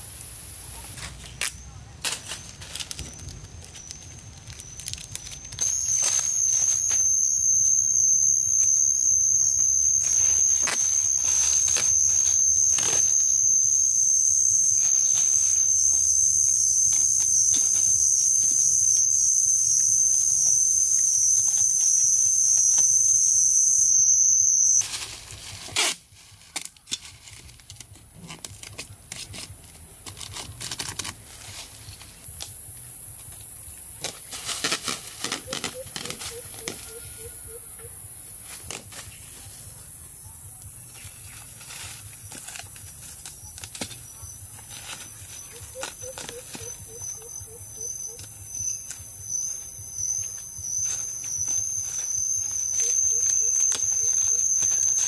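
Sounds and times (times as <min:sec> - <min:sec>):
plastic film crinkling: 0:02.1 - 0:07.0.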